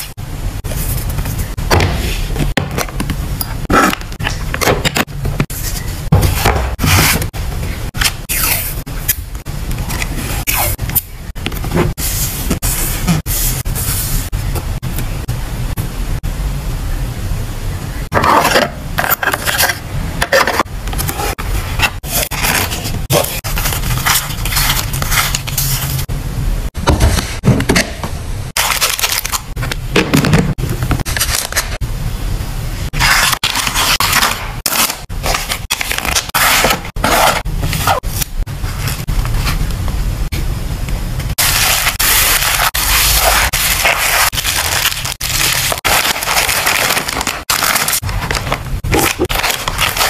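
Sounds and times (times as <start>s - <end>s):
plastic mailer bag rustling: 41.4s - 50.0s
plastic sleeves crinkling: 41.4s - 50.0s.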